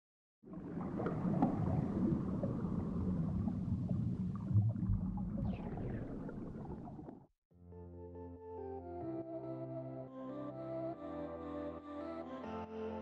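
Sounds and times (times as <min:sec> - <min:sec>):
exhaled bubbles rumbling: 0:00.4 - 0:07.3
deep underwater thump: 0:00.9 - 0:07.3.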